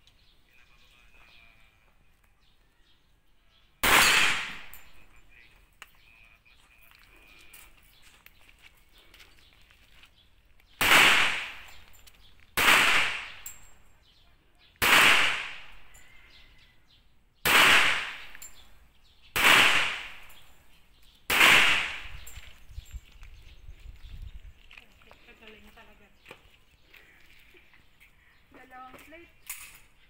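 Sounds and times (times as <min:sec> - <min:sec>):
pistol shots with echo: 0:03.8 - 0:05.1, 0:10.8 - 0:11.9, 0:12.6 - 0:13.8, 0:14.8 - 0:16.0, 0:17.4 - 0:18.6, 0:19.3 - 0:20.4, 0:21.3 - 0:22.4.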